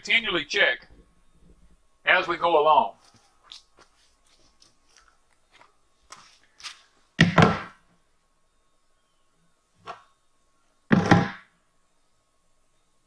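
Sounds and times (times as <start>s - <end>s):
level thunking on plastic rim: 10.9s - 11.4s.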